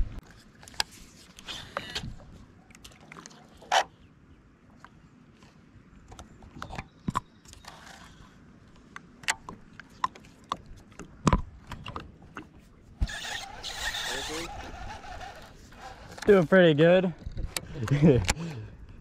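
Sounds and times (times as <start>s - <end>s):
fishing reel clicking and cranking: 13.0s - 16.4s.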